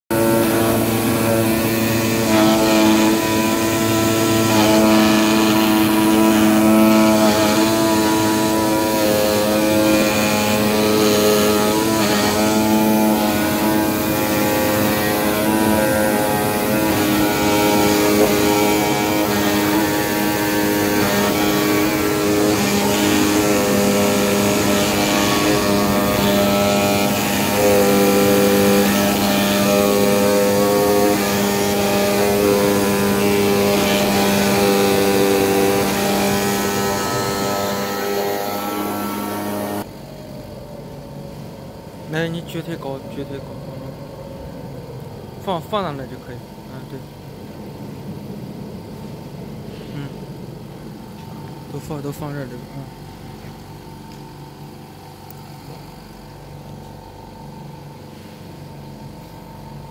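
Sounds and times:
machine tones changing pitch: 0:00.1 - 0:41.8
cutting machine hum: 0:00.1 - 0:59.9.

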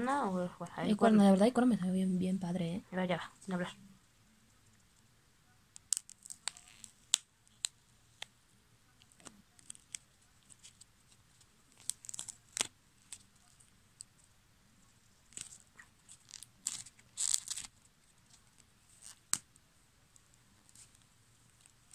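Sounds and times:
varnish crust crackling and splitting: 0:05.8 - 0:08.3, 0:09.0 - 0:14.1, 0:15.2 - 0:19.6.

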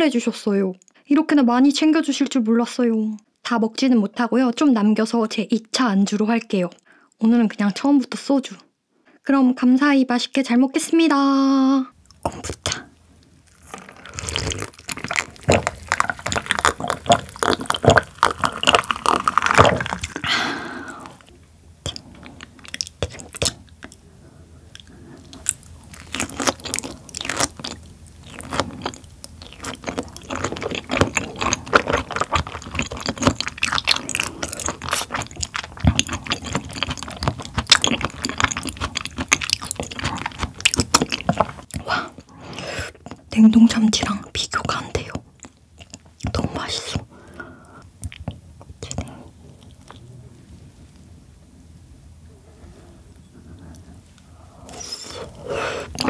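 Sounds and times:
chewing and wet mouth sounds: 0:12.0 - 0:51.1, 0:52.5 - 0:56.0
mouth clicks and smacks: 0:13.7 - 0:24.0, 0:48.0 - 0:50.0.

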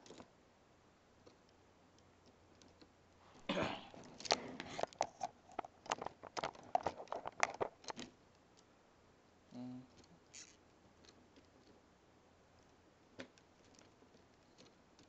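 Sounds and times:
plastic scraping rustle: 0:04.0 - 0:08.1.

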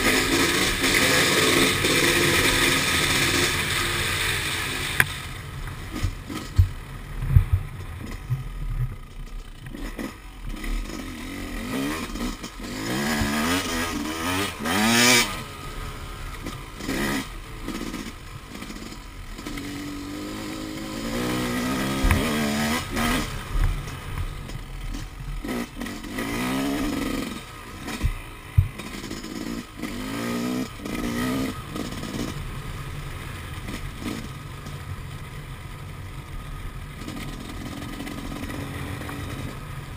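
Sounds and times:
dirt bike engine revving: 0:00.0 - 0:39.9
sharp knocks over rough ground: 0:04.9 - 0:10.2, 0:21.9 - 0:25.2, 0:27.9 - 0:29.2.

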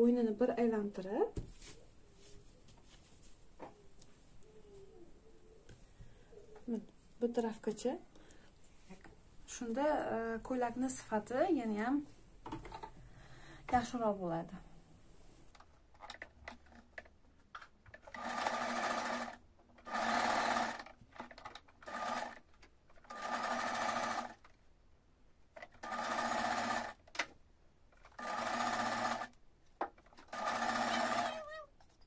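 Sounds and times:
sewing machine stitching: 0:17.9 - 0:24.5, 0:25.6 - 0:27.3, 0:28.0 - 0:29.4, 0:30.0 - 0:31.4.

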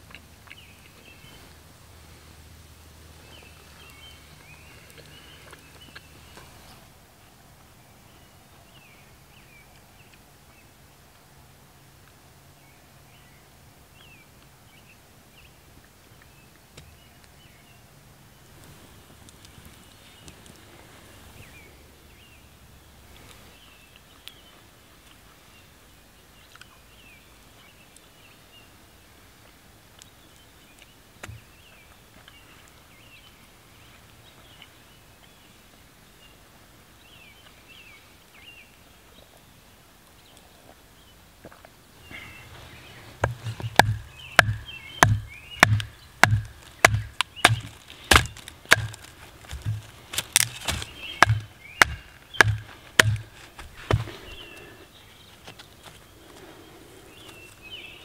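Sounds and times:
faint birdsong: 0:00.0 - 0:58.0
knife batoned through wood knocks: 0:43.2 - 0:54.2.

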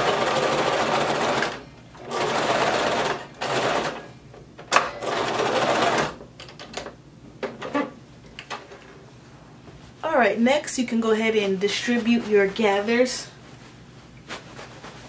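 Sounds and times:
sewing machine stitching: 0:00.0 - 0:04.0, 0:04.8 - 0:06.2.

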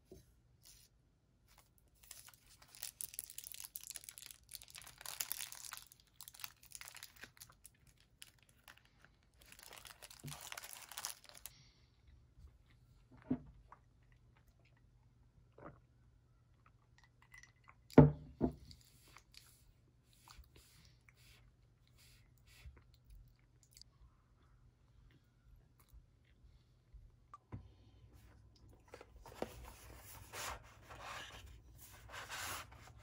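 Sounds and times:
paper liner crinkling: 0:01.5 - 0:11.5
flaky pastry tearing: 0:02.0 - 0:08.8, 0:09.4 - 0:11.5.

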